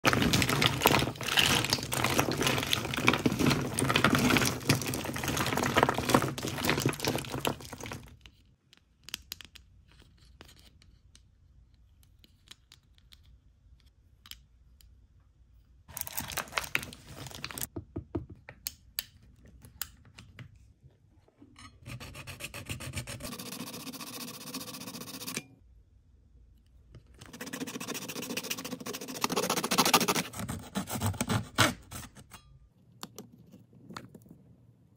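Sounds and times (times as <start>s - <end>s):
blade scraping plastic: 0.0s - 8.1s, 27.3s - 32.2s
plastic wrappers crinkling: 0.0s - 8.2s, 15.9s - 17.7s.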